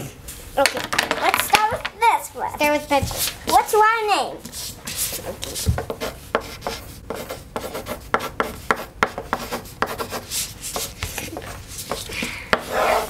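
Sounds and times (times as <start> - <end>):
pencils scratching on paper: 2.6 - 3.8, 4.4 - 13.0.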